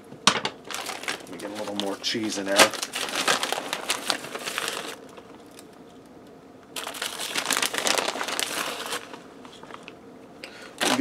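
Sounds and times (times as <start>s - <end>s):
plastic bag crinkling: 0.6s - 5.7s, 6.8s - 9.9s, 10.7s - 11.0s.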